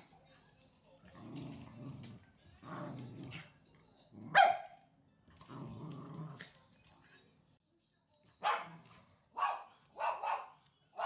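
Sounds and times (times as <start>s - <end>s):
dogs growling: 1.0s - 4.4s, 5.3s - 6.6s.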